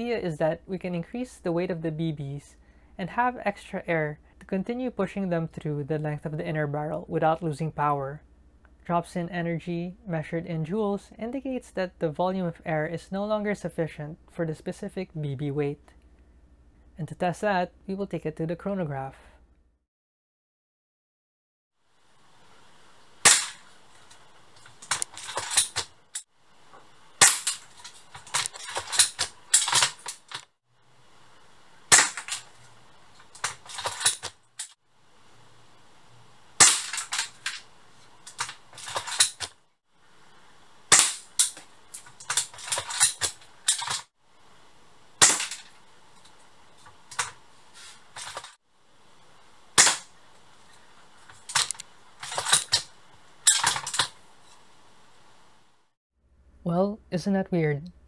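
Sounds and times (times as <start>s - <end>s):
airsoft rifle shots: 23.2s - 23.6s, 27.2s - 27.6s, 31.9s - 32.5s, 36.6s - 37.3s, 40.9s - 41.6s, 49.8s - 50.1s.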